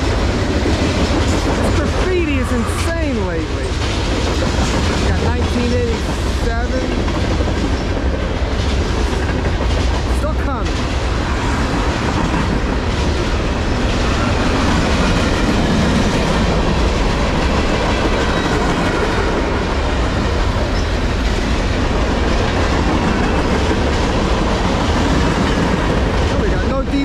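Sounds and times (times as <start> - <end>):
freight train wheels rumbling: 0.0 - 27.0.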